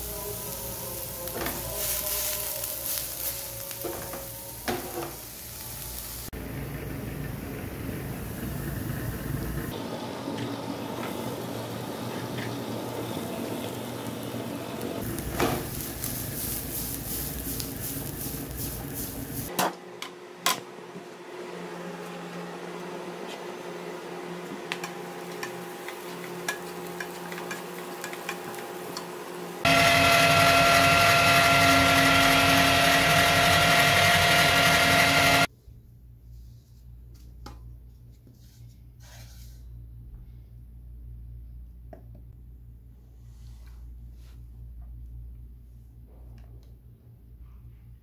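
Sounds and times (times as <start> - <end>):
vegetables sizzling in a frying pan: 0.0 - 6.3, 15.0 - 19.5
spatula scraping and tapping: 24.7 - 29.1
electric meat grinder running: 29.7 - 35.5.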